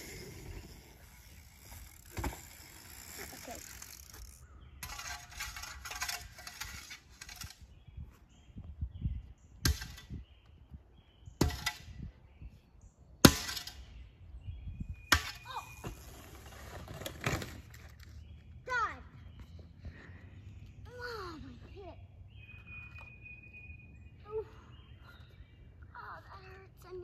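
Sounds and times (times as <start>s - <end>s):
shovel scraping dirt: 4.8s - 7.6s.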